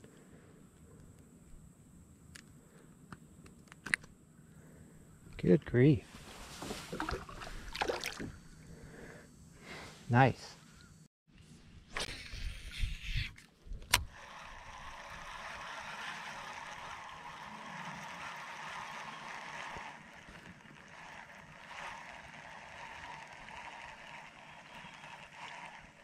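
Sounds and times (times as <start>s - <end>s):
water lapping against plastic hull: 6.6s - 8.2s.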